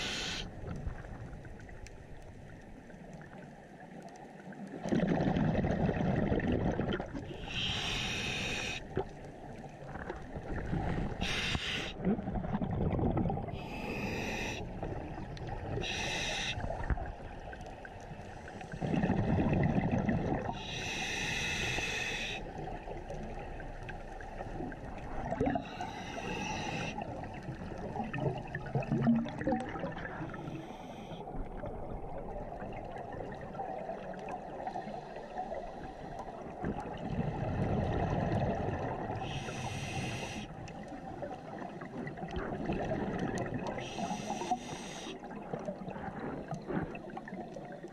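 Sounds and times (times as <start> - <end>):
regulator inhalation hiss: 0.0 - 0.6, 7.4 - 8.9, 11.2 - 12.0, 13.6 - 14.7, 15.8 - 16.7, 20.6 - 22.5, 25.6 - 27.0, 30.3 - 31.2, 39.2 - 40.6, 43.8 - 45.2
exhaled air bubbling: 4.6 - 47.9.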